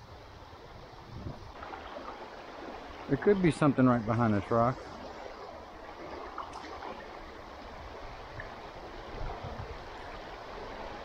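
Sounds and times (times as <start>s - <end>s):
river water rushing: 1.4s - 11.0s.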